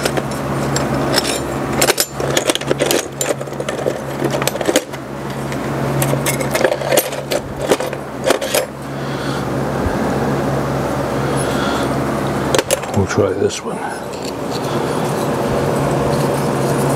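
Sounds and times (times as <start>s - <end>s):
metal tools clinking: 0.0s - 8.8s, 13.8s - 16.9s
low shop hum: 0.0s - 16.9s.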